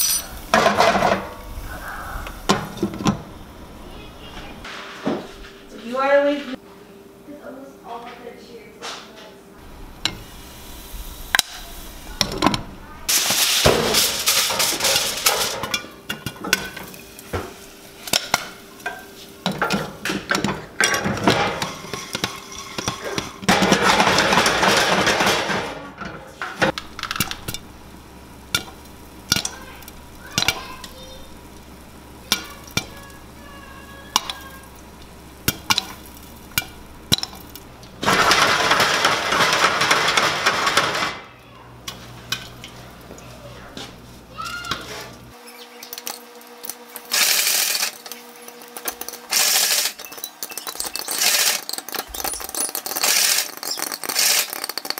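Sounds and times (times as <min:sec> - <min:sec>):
popcorn popping: 0:00.0 - 0:04.0, 0:09.6 - 0:54.9
kernels rattling in shaken pan: 0:13.1 - 0:25.8, 0:26.4 - 0:41.3, 0:45.9 - 0:54.9.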